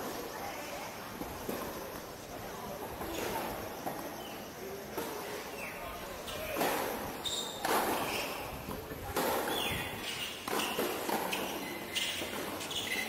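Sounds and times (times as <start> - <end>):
racket hitting tennis ball: 9.1 - 12.9.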